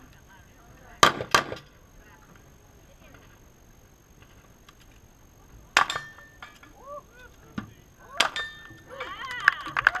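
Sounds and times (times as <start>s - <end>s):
metallic ring of steel target: 5.8s - 6.8s, 8.2s - 8.8s.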